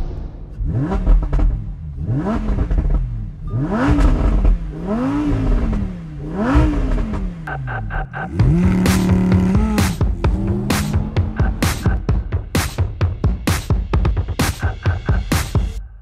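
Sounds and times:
car engine revving: 0:00.4 - 0:12.7.

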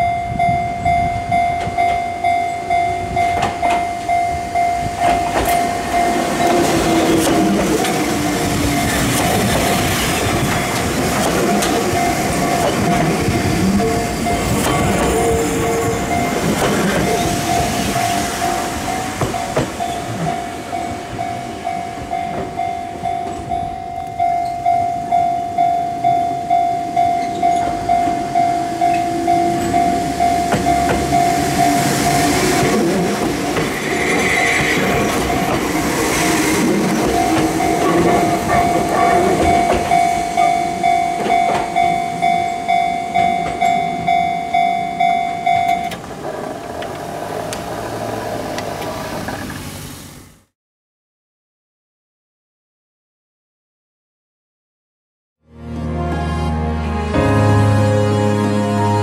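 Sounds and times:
level-crossing warning bell: 0:00.0 - 0:48.8
train wheels clattering on rails: 0:03.1 - 0:23.6, 0:27.2 - 0:49.6.

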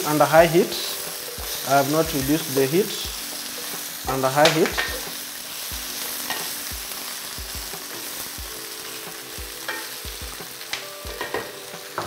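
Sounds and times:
chicken sizzling in oil: 0:00.0 - 0:12.0.

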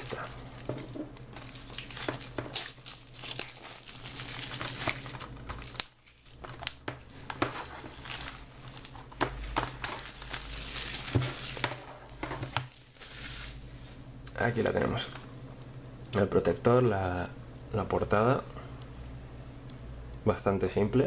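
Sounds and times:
plastic wrap crinkling: 0:00.0 - 0:13.6.

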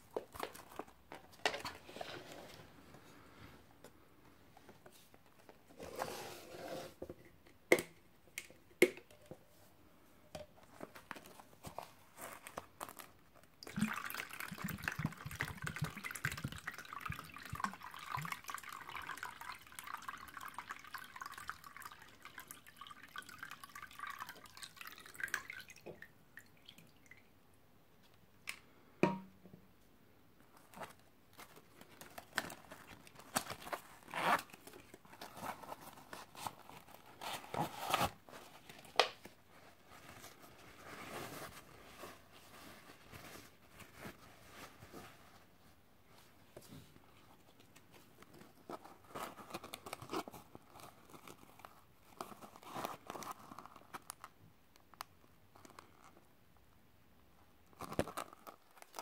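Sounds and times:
wet pouch rustling: 0:10.8 - 0:13.2, 0:30.6 - 0:45.5, 0:47.7 - 0:54.3.

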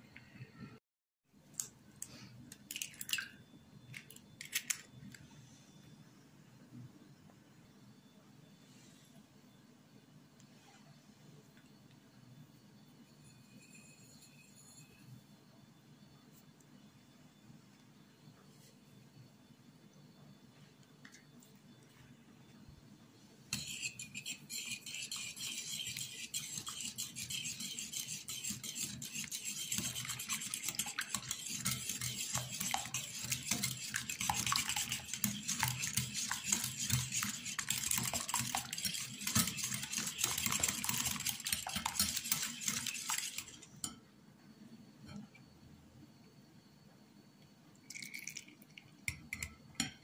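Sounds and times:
whisk beating in a bowl: 0:23.5 - 0:43.9.

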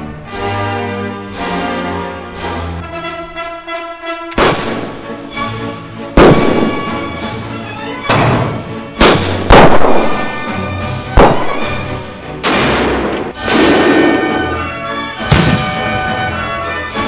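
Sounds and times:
echoing gunshots: 0:04.4 - 0:05.4, 0:06.2 - 0:07.4, 0:08.1 - 0:16.2.

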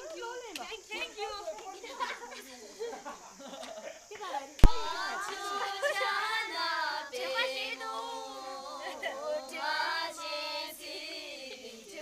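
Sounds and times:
girls singing unaccompanied: 0:04.6 - 0:12.0.

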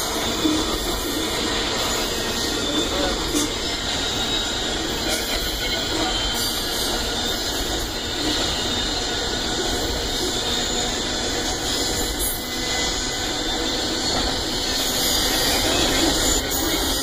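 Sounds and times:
train wheels rolling on rail: 0:00.0 - 0:17.0.

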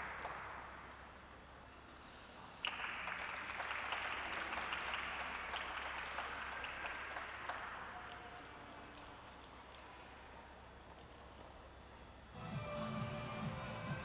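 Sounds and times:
audience applauding: 0:02.6 - 0:08.4.

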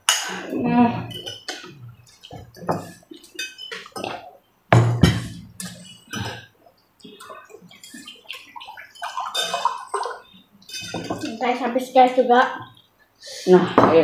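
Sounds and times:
cutlery clinking on plates: 0:01.1 - 0:06.5, 0:10.7 - 0:11.3
sharp knocks: 0:04.7 - 0:05.4.

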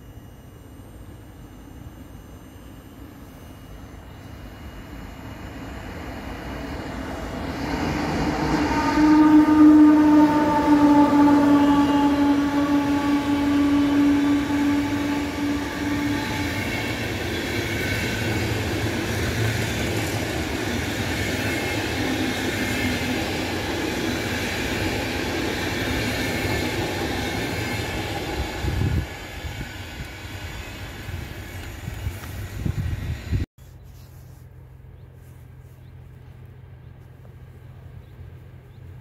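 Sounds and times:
locomotive tone: 0:00.0 - 0:39.0.

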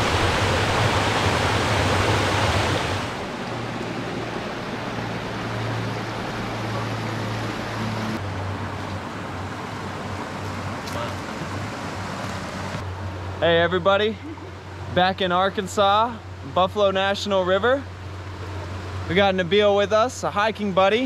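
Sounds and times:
waterfall splashing over rocks: 0:00.0 - 0:03.3, 0:09.2 - 0:12.8
creek water running: 0:00.0 - 0:21.0.

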